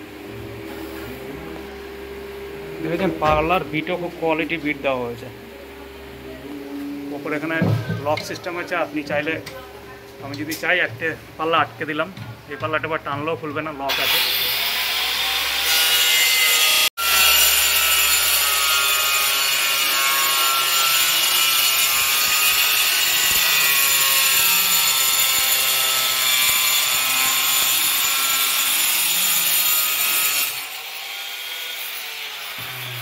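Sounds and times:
angle grinder cutting board: 0:13.9 - 0:33.0.

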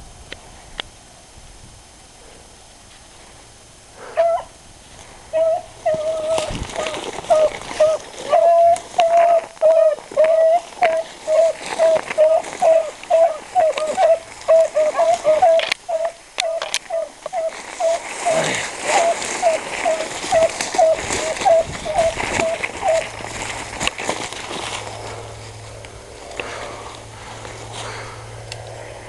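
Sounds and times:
hounds baying: 0:04.0 - 0:04.6, 0:05.3 - 0:28.2.

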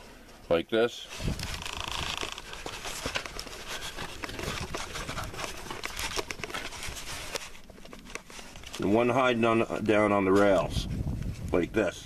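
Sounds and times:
camera handling noise: 0:01.2 - 0:08.8.

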